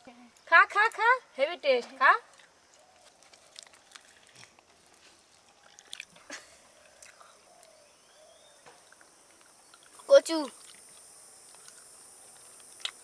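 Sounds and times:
chewing with soft smacks: 2.3s - 7.8s, 8.8s - 13.0s.

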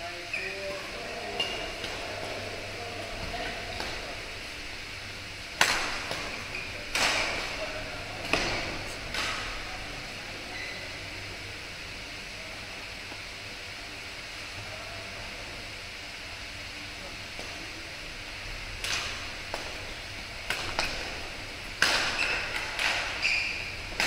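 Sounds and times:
steady hiss: 0.0s - 24.0s
racket hitting shuttlecock: 5.6s - 7.5s, 8.2s - 9.6s, 18.8s - 21.2s, 21.8s - 24.0s.

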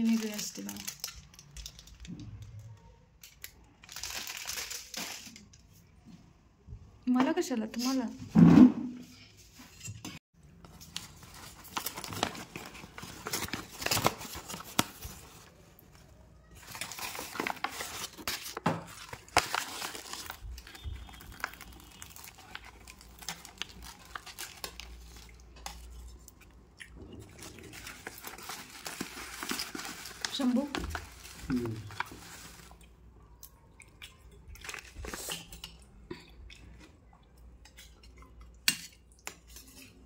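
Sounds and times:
paper wrapping crinkling: 0.0s - 2.1s, 3.2s - 5.5s, 10.6s - 26.0s, 27.4s - 32.8s
steel bowls and spoon clinking: 34.2s - 40.0s.

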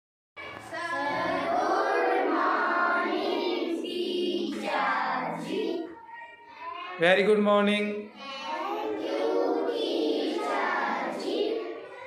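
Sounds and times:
children chanting in chorus: 0.4s - 6.9s, 8.2s - 12.0s.

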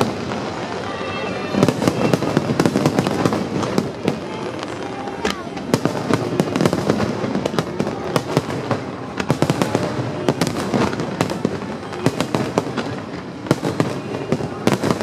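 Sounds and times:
fireworks bangs and cracks: 0.0s - 15.0s.

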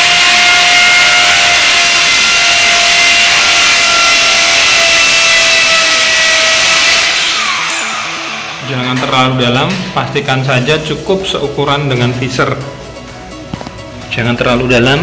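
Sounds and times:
electric drill boring into masonry: 0.0s - 9.0s.

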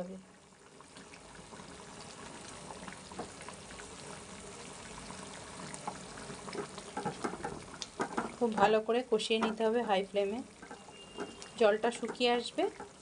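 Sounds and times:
curry bubbling in a frying pan: 0.0s - 13.0s
spatula stirring and scraping pan: 5.8s - 13.0s.

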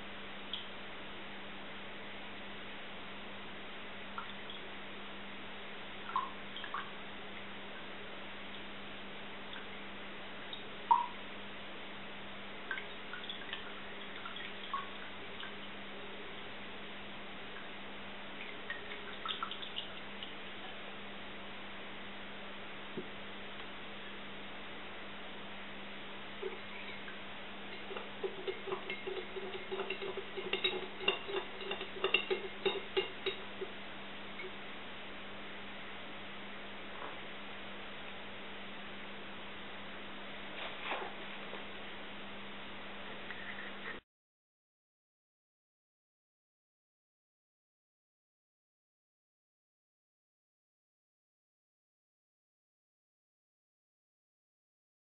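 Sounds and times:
steady low hum: 0.0s - 44.0s
water dripping into a glass: 4.1s - 4.7s, 6.0s - 7.9s, 10.5s - 11.2s, 12.7s - 15.8s, 17.5s - 20.4s, 26.4s - 33.8s
metal spoon clinking in glass: 27.7s - 33.5s.

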